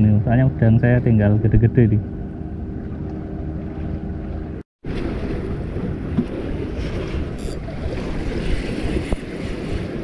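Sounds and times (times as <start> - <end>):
wind buffeting microphone: 0.0 - 10.0
sea water washing against breakwater: 2.8 - 10.0.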